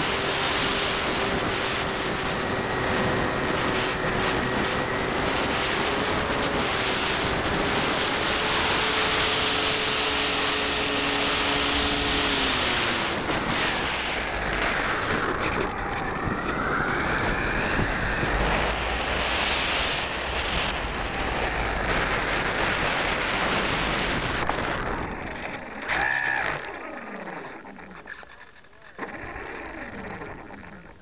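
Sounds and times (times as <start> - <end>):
wind rush: 0.0 - 25.9
electric motor and propeller whine: 0.0 - 31.0.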